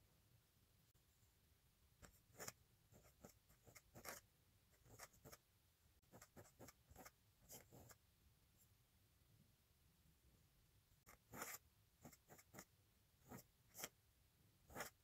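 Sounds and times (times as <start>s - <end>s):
pen nib scratching on paper: 2.0s - 5.4s, 6.1s - 8.0s, 11.0s - 14.0s, 14.7s - 15.0s.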